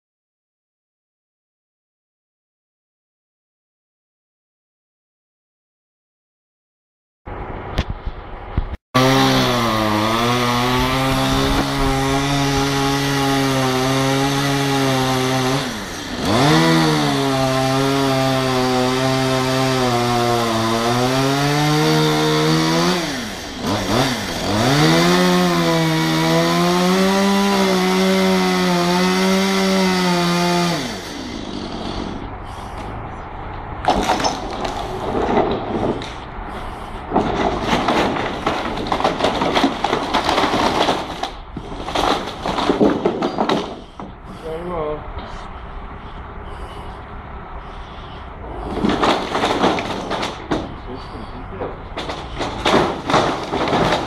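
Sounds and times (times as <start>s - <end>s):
chainsaw cutting wood: 9.0s - 32.9s, 33.9s - 44.1s, 48.8s - 50.9s, 52.0s - 54.0s.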